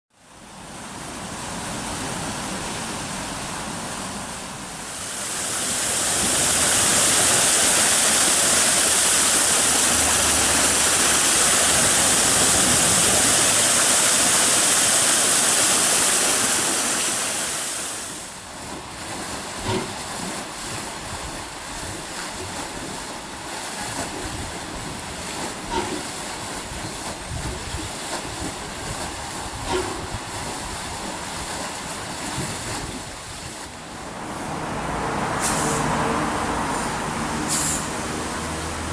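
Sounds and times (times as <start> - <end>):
loud steady hiss: 0.8 - 18.6
water gushing and splashing: 0.9 - 38.9.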